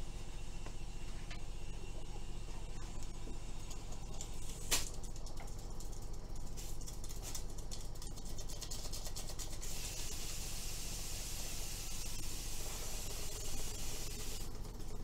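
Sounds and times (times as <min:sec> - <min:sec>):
steady hiss: 0:09.6 - 0:14.4.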